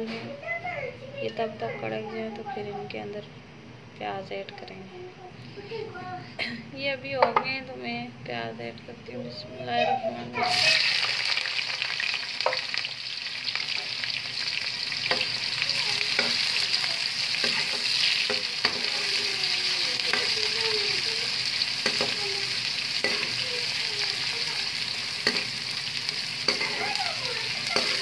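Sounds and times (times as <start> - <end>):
onions sizzling in oil: 10.4 - 28.0.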